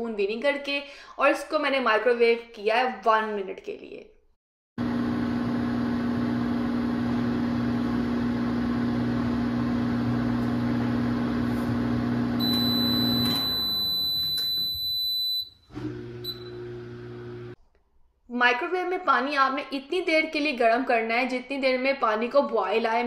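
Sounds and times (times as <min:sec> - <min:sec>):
microwave oven humming: 0:04.8 - 0:17.6
microwave high beep: 0:11.9 - 0:17.1.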